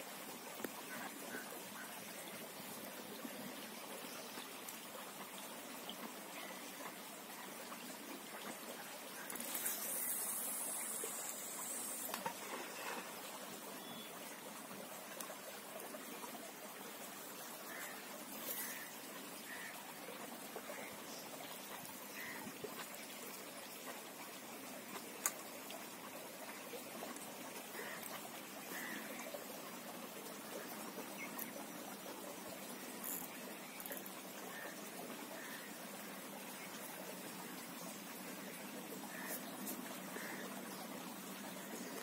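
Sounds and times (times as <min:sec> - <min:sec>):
shallow river water trickling: 0:00.0 - 0:42.0
high hiss: 0:09.4 - 0:12.3.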